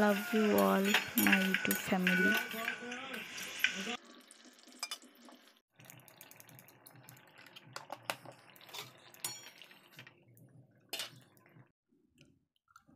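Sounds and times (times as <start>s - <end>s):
gravy sloshing and bubbling: 3.9s - 11.7s.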